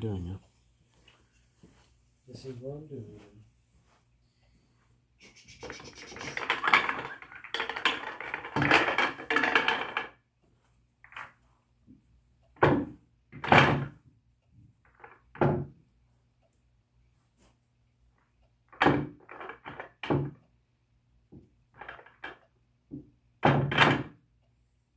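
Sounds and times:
pool balls clattering and rolling: 5.7 - 10.3, 11.0 - 15.8, 18.2 - 20.5, 21.2 - 24.2.

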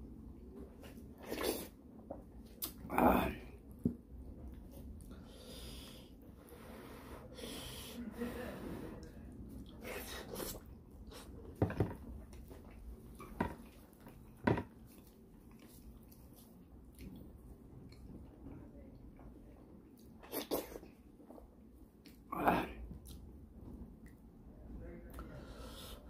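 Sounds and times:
heavy breathing through nose: 5.1 - 9.0, 25.2 - 26.0.

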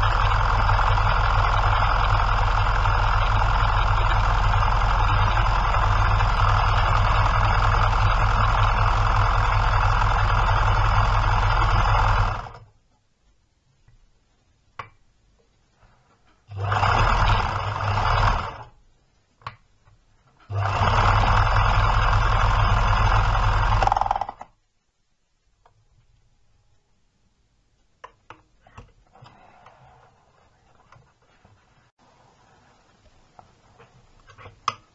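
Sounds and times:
sewing machine running: 0.0 - 12.6, 16.5 - 18.8, 20.5 - 24.4
sewing machine clicks: 20.5 - 24.5.

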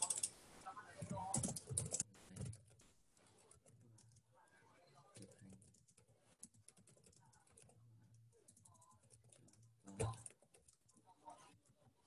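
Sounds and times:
typing on keyboard: 0.0 - 0.3, 1.1 - 4.2, 5.2 - 11.0.

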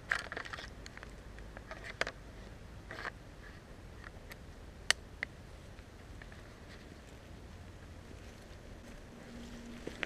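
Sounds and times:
dry leaves rustling: 5.5 - 10.0.

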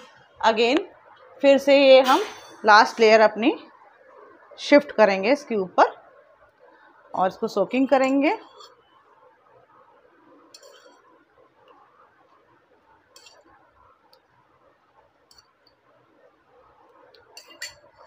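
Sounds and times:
spoon clinking against steel tumbler: 10.6 - 11.0, 13.2 - 13.5, 17.4 - 18.0.

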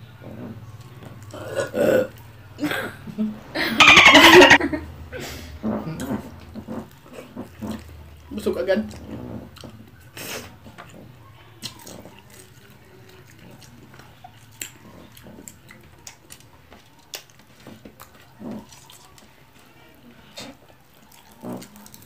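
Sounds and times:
chair creaking: 3.8 - 4.6
wet chewing and lip-smacking: 8.9 - 22.0.

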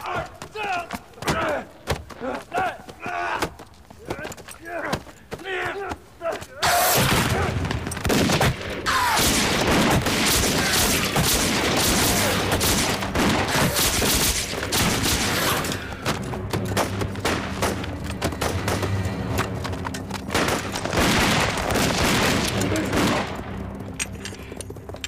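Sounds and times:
gunfire: 6.6 - 15.9, 20.3 - 23.4.

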